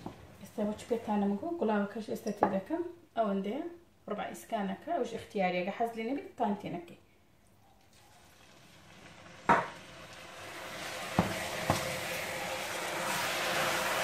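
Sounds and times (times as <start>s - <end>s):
liquid sizzling in a hot pan: 7.9s - 14.0s.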